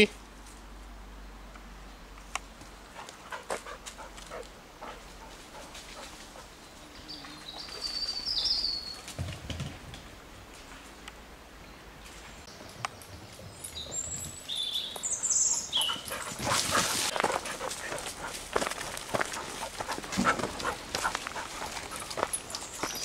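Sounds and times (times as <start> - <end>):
twigs and leaves crackling underfoot: 2.2 - 6.8, 14.4 - 23.0.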